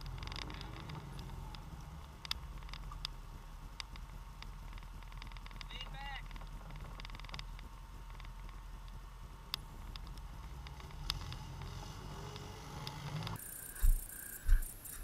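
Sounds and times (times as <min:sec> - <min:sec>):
sharp clicks: 0:00.0 - 0:03.2, 0:03.8 - 0:11.7
atv engine running: 0:00.0 - 0:15.0.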